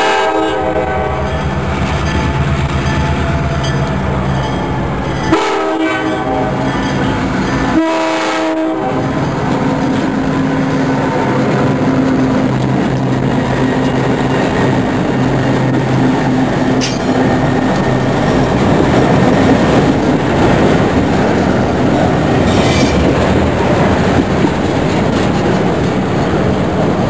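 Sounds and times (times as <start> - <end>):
train horn blasts: 0.0 - 1.5, 5.2 - 7.0, 7.6 - 9.2
diesel locomotive engine: 0.0 - 27.0
train rolling past: 0.0 - 27.0.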